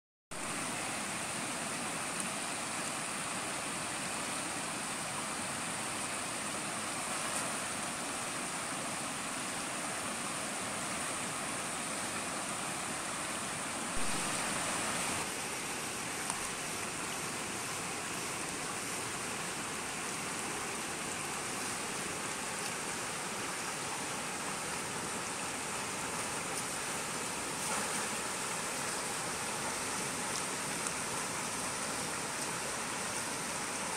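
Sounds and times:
river rushing over stones: 0.3s - 33.9s.

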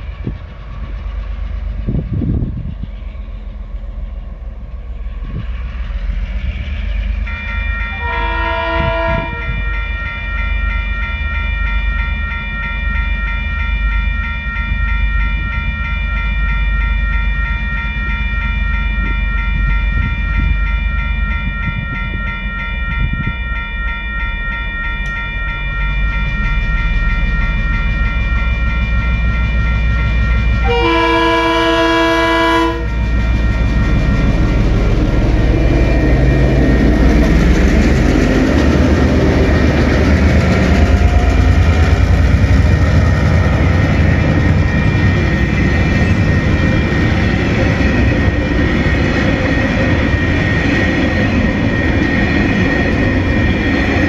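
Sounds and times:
diesel locomotive rumble: 0.0s - 54.0s
level-crossing warning bells: 0.0s - 54.0s
locomotive horn: 7.9s - 9.6s, 30.6s - 33.1s.

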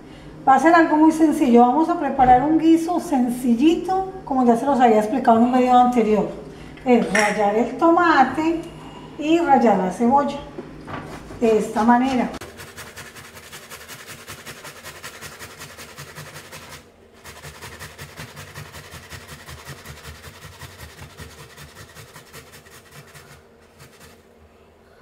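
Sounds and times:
tomato grated on metal grater: 12.4s - 24.2s.

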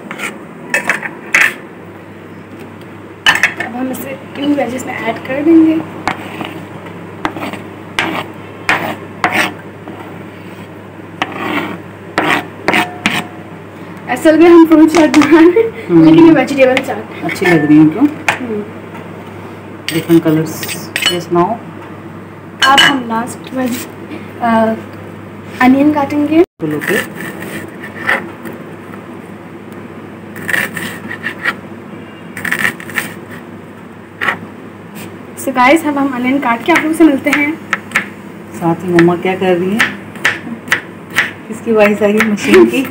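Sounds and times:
knife scraping cutting board: 0.0s - 1.6s, 6.0s - 13.4s, 26.7s - 28.6s, 30.4s - 31.6s, 32.4s - 33.5s, 34.2s - 34.4s
knife cutting onion on board: 7.2s - 9.6s, 11.2s - 13.3s, 39.8s - 42.9s.

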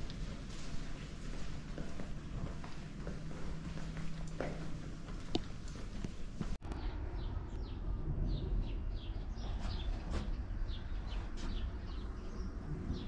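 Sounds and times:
steady low rumble: 0.0s - 13.0s
small birds chirping: 6.6s - 13.0s.

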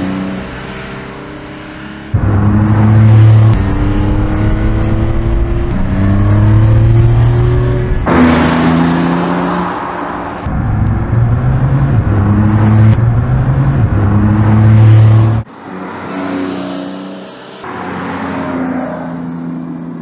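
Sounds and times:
car exhaust under hard acceleration: 2.1s - 9.0s, 10.3s - 15.5s.

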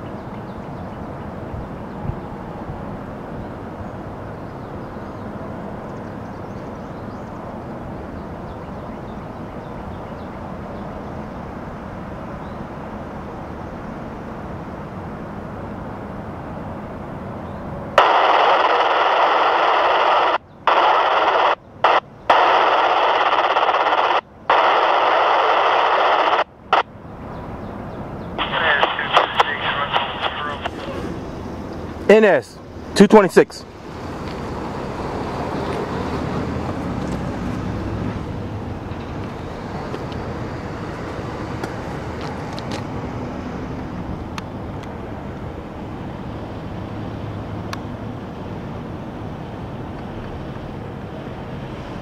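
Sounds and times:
steady rumbling noise: 10.5s - 52.0s
scanner radio static hiss: 18.0s - 27.0s, 28.4s - 34.1s.

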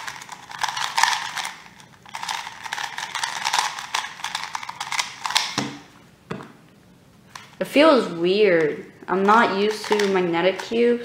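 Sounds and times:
puzzle cube plastic clicks: 0.0s - 5.8s, 8.6s - 10.8s.

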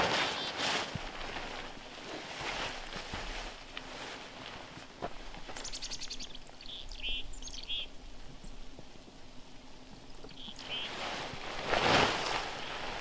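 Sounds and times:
faint outdoor noise: 0.0s - 13.0s
small birds chirping: 0.0s - 13.0s.

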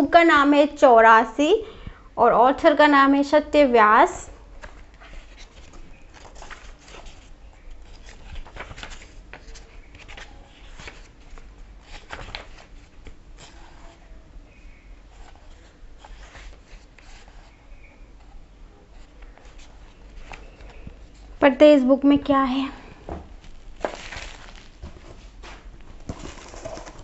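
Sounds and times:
paper pages rustling: 4.6s - 14.0s, 15.1s - 21.3s, 23.3s - 27.0s.

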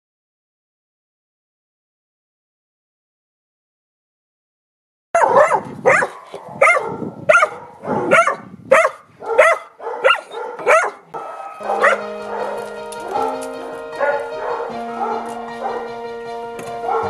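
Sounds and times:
puppy barking: 5.2s - 15.9s
music: 11.2s - 17.0s.

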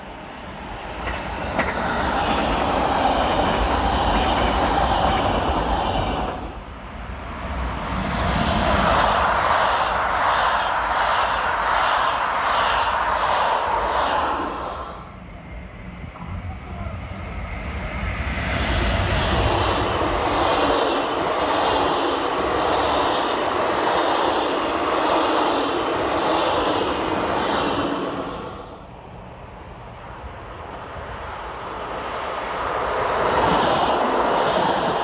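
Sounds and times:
electric train passing: 0.0s - 35.0s.

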